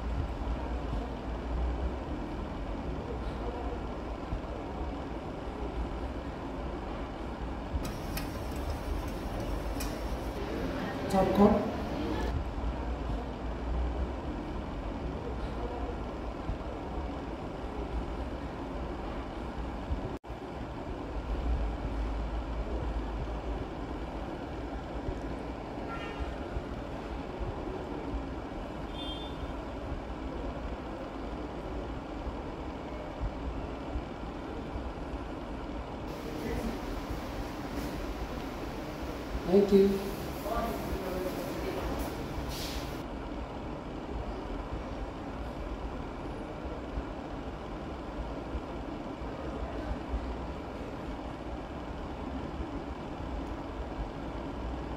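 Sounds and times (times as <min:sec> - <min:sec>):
low mechanical rumble: 0:00.0 - 0:54.9
short hiss: 0:07.8 - 0:10.4, 0:36.1 - 0:43.0.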